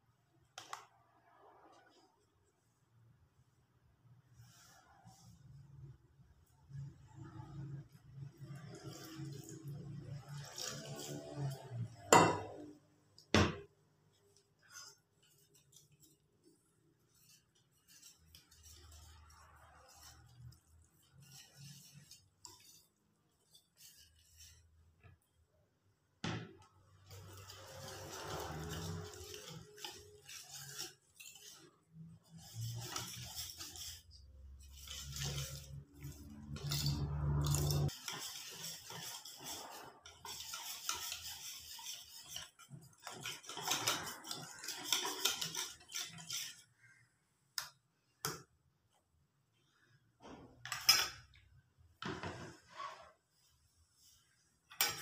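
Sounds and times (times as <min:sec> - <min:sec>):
wire whisk scraping metal bowl: 0:06.4 - 0:25.3, 0:26.9 - 0:47.1, 0:52.2 - 0:55.0.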